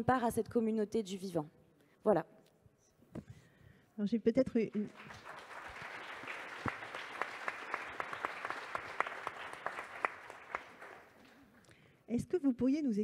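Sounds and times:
audience applauding: 0:04.9 - 0:11.6.

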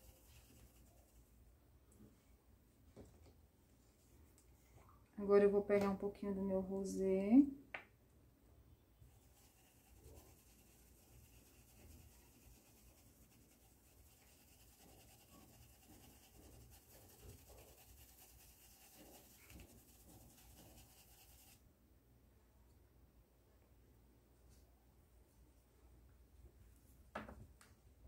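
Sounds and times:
paintbrush rubbing on cloth: 0:00.0 - 0:01.4, 0:09.1 - 0:21.6.

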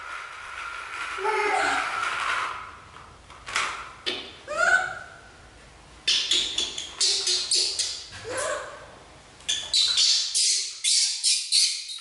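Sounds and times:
baby monkey squealing: 0:06.1 - 0:08.1, 0:09.5 - 0:12.0.

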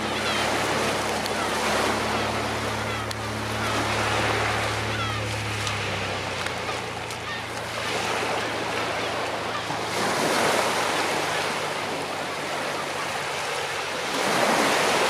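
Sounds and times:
waves washing up shingle beach: 0:00.0 - 0:15.0.

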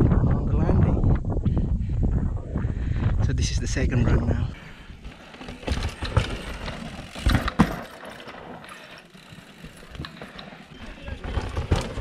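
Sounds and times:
bike tyres crunching on dirt: 0:04.5 - 0:12.0
bike clattering knocks: 0:05.3 - 0:12.0.

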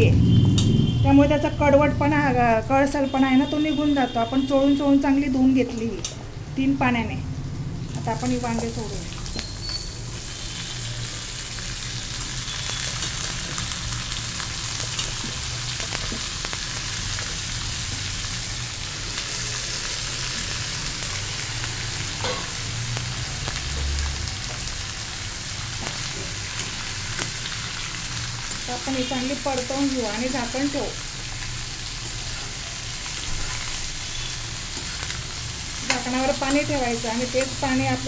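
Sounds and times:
vegetables sizzling in hot oil: 0:07.8 - 0:38.0.

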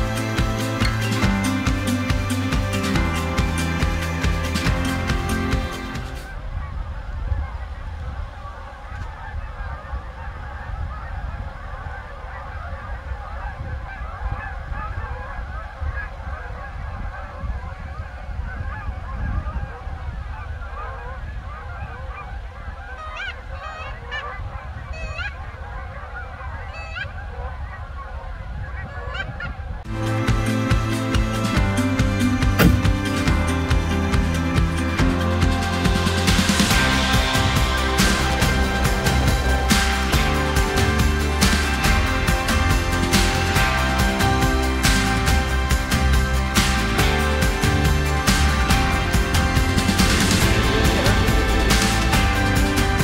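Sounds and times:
higher goose calls: 0:00.0 - 0:29.9
geese honking: 0:00.0 - 0:53.0
low rumble: 0:29.8 - 0:53.0.

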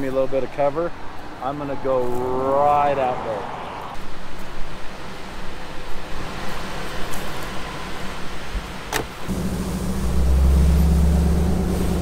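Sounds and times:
car door shutting: 0:08.9 - 0:12.0
engine low drone: 0:09.2 - 0:12.0.

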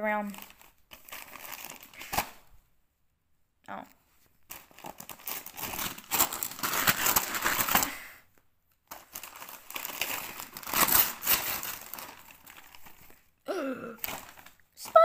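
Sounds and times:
wrapping paper tearing and crumpling: 0:00.3 - 0:02.4, 0:04.5 - 0:08.1, 0:08.9 - 0:13.3, 0:14.0 - 0:15.0.

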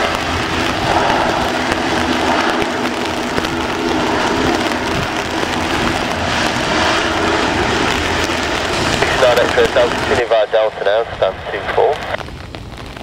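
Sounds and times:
aircraft engine noise: 0:00.0 - 0:13.0
heavy rain hiss: 0:00.0 - 0:13.0
turboprop propellers turning: 0:00.0 - 0:13.0.

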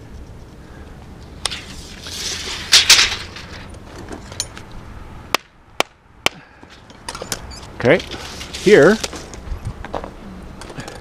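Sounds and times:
tape measure rasping: 0:01.4 - 0:03.7, 0:08.0 - 0:09.3.

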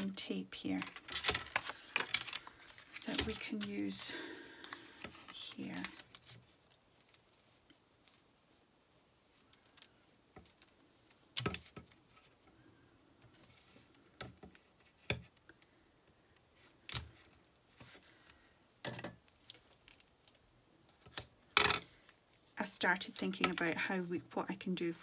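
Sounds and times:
cardstock and tape rustling: 0:00.0 - 0:08.6.

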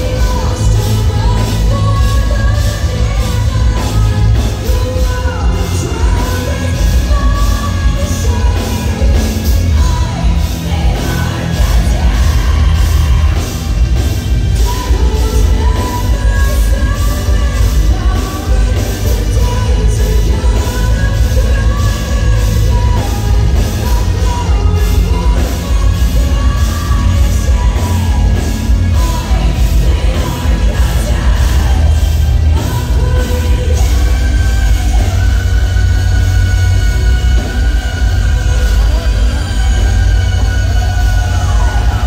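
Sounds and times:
metal band playing live: 0:00.0 - 0:42.0
woman singing: 0:00.0 - 0:42.0.

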